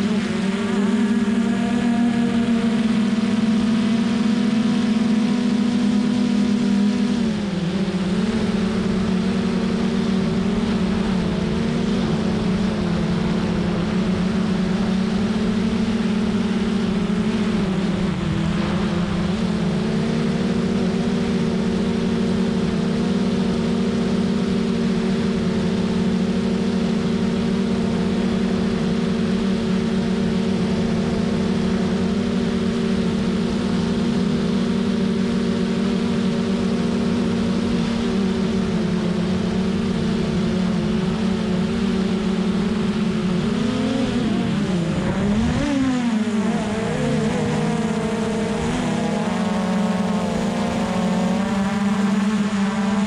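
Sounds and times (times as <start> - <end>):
drone propellers humming: 0.0 - 53.0.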